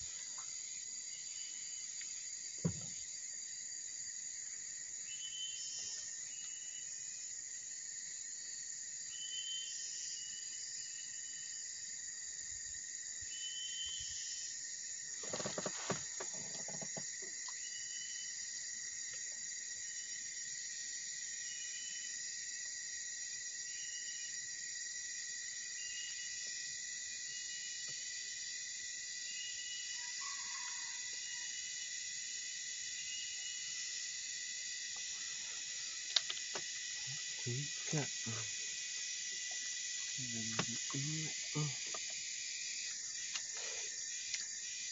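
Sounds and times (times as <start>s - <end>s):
high-pitched insect chorus: 0.0s - 44.9s
insect chirps: 0.0s - 44.9s.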